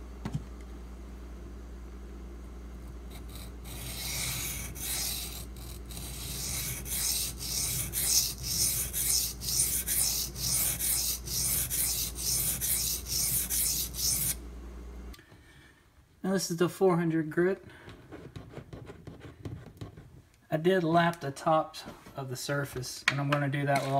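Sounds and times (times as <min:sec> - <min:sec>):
knife scraping on whetstone: 0:03.1 - 0:14.4.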